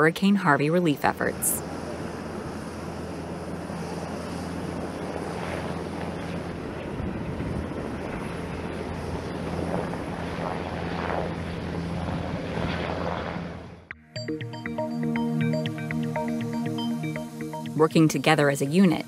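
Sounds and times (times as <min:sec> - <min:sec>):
helicopter flying past: 0:00.0 - 0:13.9.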